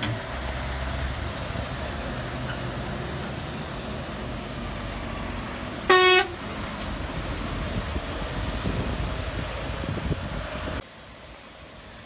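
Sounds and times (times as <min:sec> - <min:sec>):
engine and road rumble: 0:00.0 - 0:12.0
lorry horn toot: 0:05.9 - 0:06.4.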